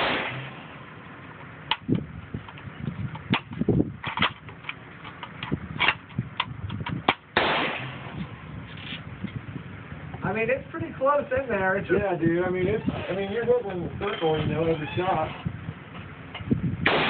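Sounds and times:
gunshot echo: 0.0 - 0.7, 7.4 - 8.2
loud gunshot bang: 0.0 - 0.7, 7.4 - 8.2.

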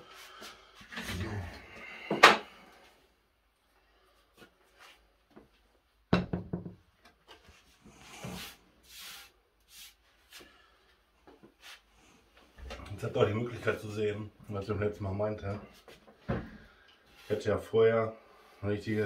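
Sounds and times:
knocks on wooden board: 6.2 - 6.8.

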